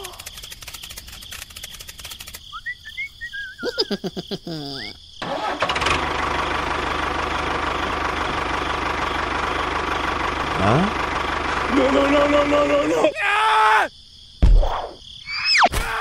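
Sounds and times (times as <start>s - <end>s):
quick clicking: 0.0s - 2.8s
cartoon-like whistling chirps: 2.5s - 3.9s, 15.2s - 15.8s
tractor engine running: 5.2s - 13.0s.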